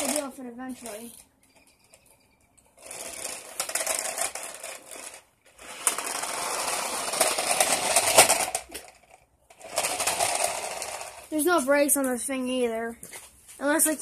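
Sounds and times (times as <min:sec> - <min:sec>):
toy car motor buzzing: 0:02.8 - 0:11.3.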